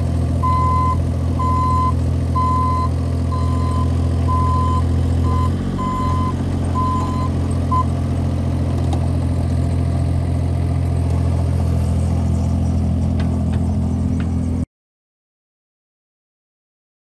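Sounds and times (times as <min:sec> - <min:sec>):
excavator diesel engine running: 0:00.0 - 0:14.7
travel alarm beep: 0:00.4 - 0:07.9.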